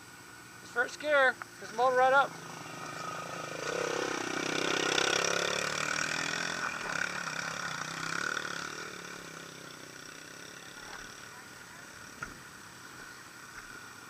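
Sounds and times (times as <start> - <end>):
motorcycle idling: 0.1 - 14.0
dirt bike engine revving: 0.5 - 14.0.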